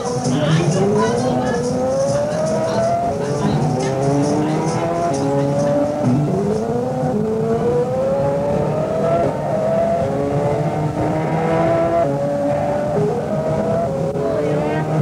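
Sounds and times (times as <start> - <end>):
car engine accelerating: 0.0 - 15.0.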